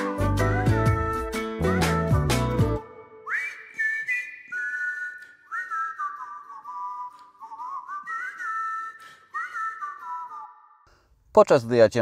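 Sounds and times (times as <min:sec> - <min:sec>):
background music: 0:00.0 - 0:03.6
whistled melody: 0:00.0 - 0:10.9.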